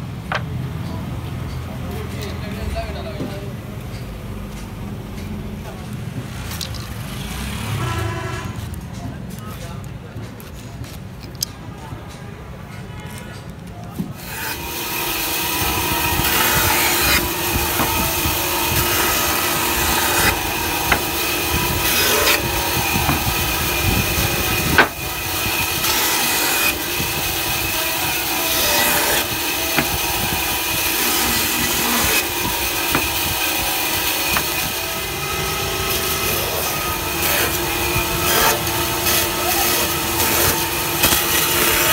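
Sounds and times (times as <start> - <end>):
band saw cutting wood: 14.2 - 41.9
sharp knocks: 16.2 - 18.2, 18.8 - 23.6, 24.2 - 25.0, 32.8 - 33.4, 34.2 - 34.7.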